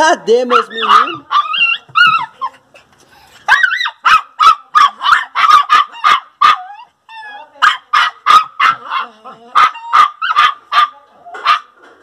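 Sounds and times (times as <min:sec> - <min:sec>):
puppies yelping: 0:00.4 - 0:02.7, 0:03.4 - 0:11.7
puppies whining: 0:00.5 - 0:02.7, 0:06.6 - 0:07.6.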